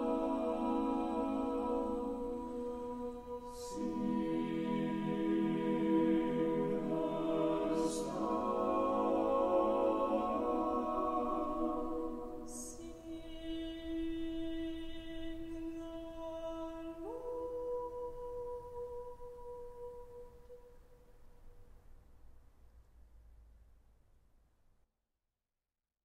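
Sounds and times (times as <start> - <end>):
choir singing a cappella: 0.0 - 20.7.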